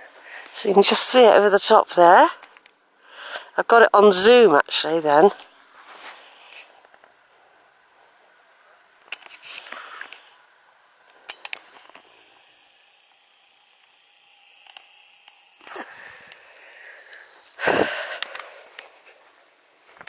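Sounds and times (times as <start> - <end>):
camcorder clicks: 11.1 - 16.4
zoom motor whirring: 11.1 - 17.6.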